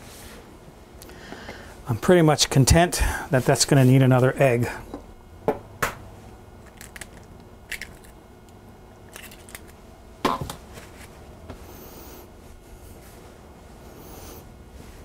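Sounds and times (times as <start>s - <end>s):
egg cracking: 6.6s - 9.8s.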